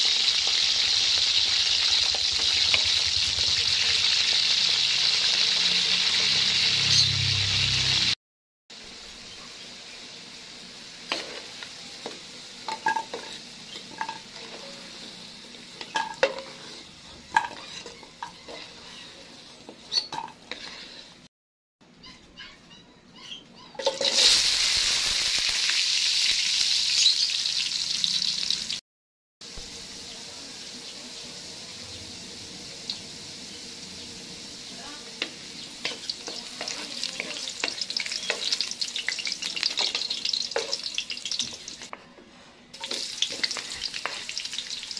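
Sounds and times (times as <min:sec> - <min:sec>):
loud burst of sizzling: 0:00.0 - 0:08.2, 0:24.0 - 0:28.8, 0:29.4 - 0:41.9, 0:42.7 - 0:44.9
vegetables frying in oil: 0:00.0 - 0:08.2, 0:08.8 - 0:21.2, 0:23.8 - 0:28.8, 0:29.4 - 0:41.9, 0:42.7 - 0:44.9.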